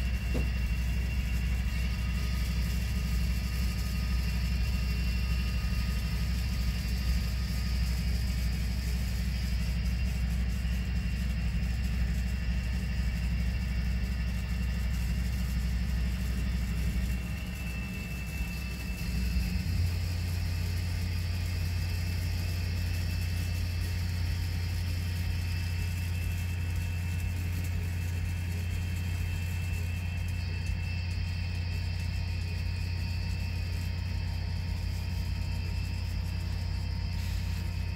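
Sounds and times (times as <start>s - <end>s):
diesel locomotive rumble: 0.0s - 37.9s
faint high whine: 0.0s - 37.9s.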